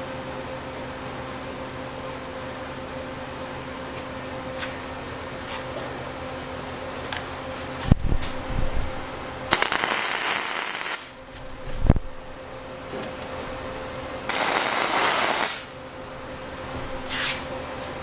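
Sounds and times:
welder crackling sizzle: 9.5 - 12.0, 14.3 - 15.8.

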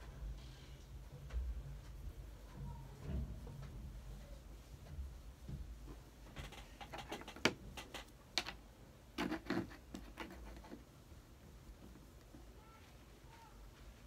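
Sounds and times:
paintbrush taps and scratches: 4.6 - 8.6, 9.2 - 11.0.

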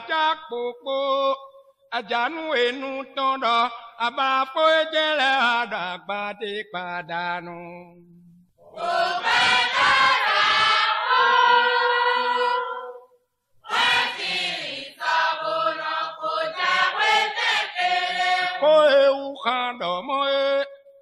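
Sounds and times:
voices singing in chorus: 8.6 - 19.9.

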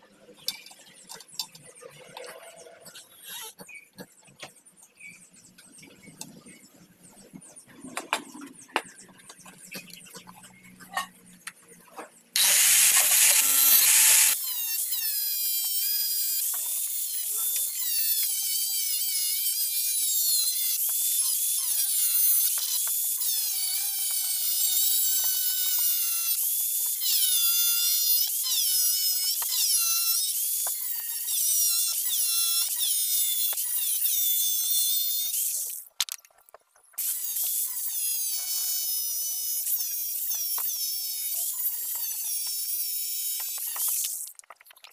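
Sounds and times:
angle grinder cutting steel: 12.4 - 35.9, 37.0 - 44.3.

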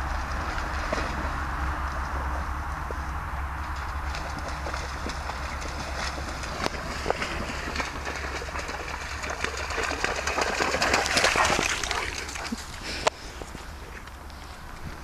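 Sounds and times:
dog splashing through water: 3.8 - 12.8.

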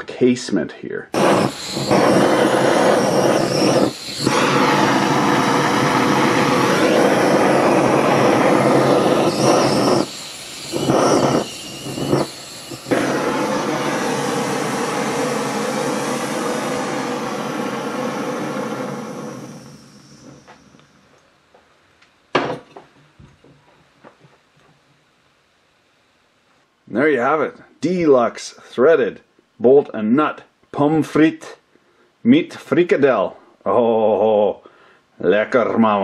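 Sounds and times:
gas torch flame hissing: 1.2 - 21.2.

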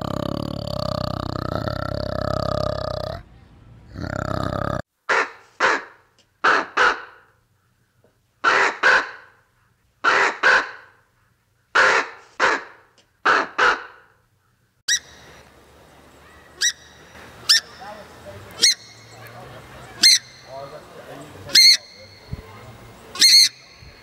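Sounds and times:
raven cawing: 11.8 - 14.6.

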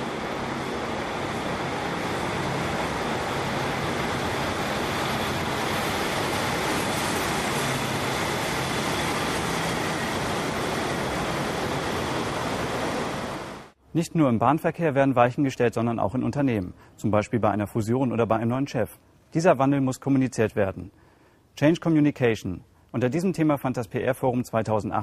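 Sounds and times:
train wheels on rail: 0.0 - 13.7.

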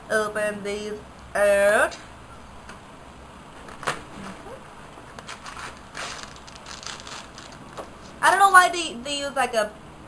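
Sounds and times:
plastic pack crinkling: 5.1 - 8.2.

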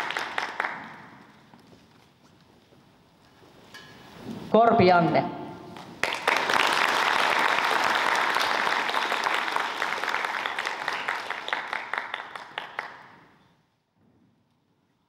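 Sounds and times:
audience applauding: 0.0 - 1.2, 6.0 - 13.4.

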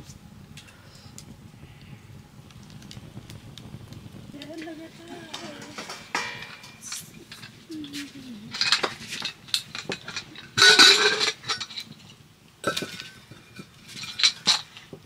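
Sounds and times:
pots and utensils clattering: 5.1 - 15.0.

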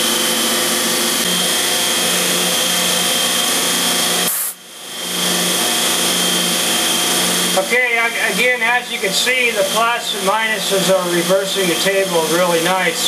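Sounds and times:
milling machine running: 0.0 - 13.0.

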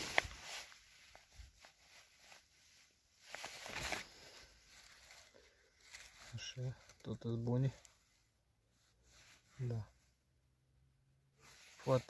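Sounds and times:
rustling of grass and plants: 0.0 - 7.9, 11.4 - 12.0.

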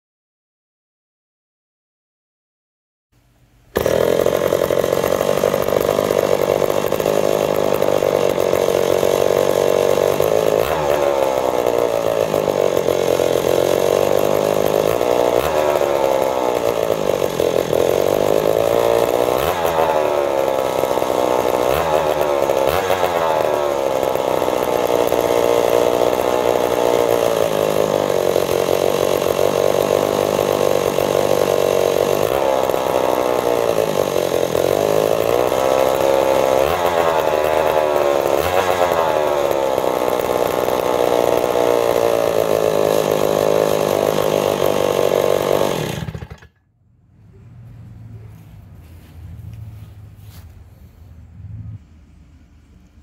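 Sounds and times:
go-kart engine revving: 3.8 - 46.6.

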